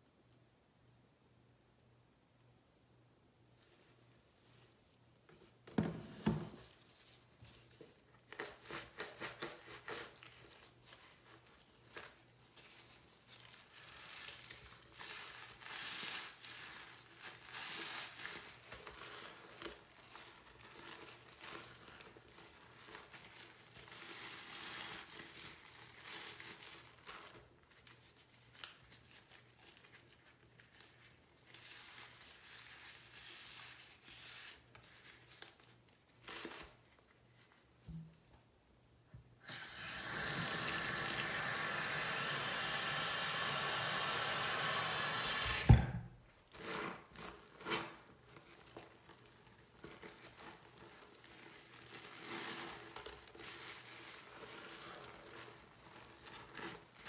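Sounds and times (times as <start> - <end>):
sponge scrubbing powder: 8.4 - 28.2.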